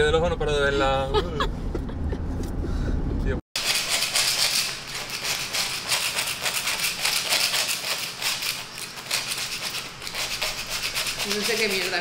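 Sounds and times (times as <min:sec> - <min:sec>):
hand scraper rasping on concrete: 0:03.6 - 0:12.0.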